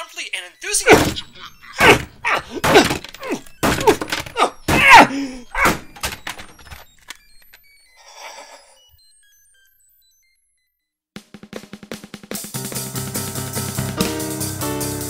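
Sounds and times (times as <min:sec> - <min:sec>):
person's loud utterances: 0:04.4 - 0:05.7.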